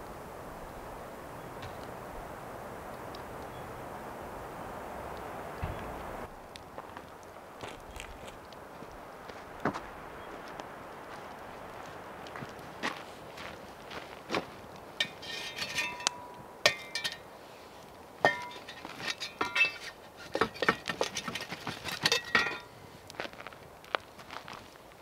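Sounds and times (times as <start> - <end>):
spade scraping through ash: 15.0 - 17.6, 18.2 - 22.8.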